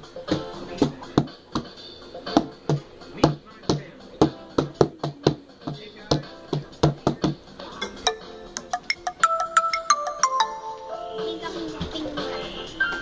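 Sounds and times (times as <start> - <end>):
electronic keyboard notes: 7.8 - 11.8.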